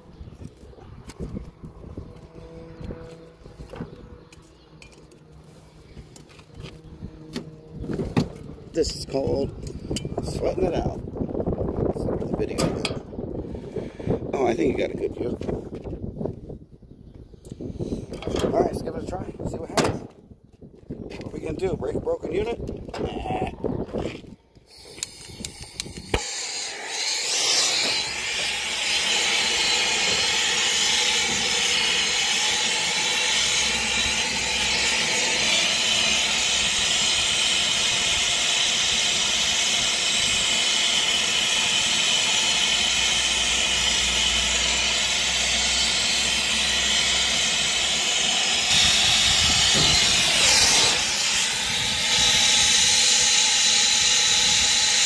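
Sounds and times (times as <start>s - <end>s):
torch flame hissing: 24.7s - 55.0s.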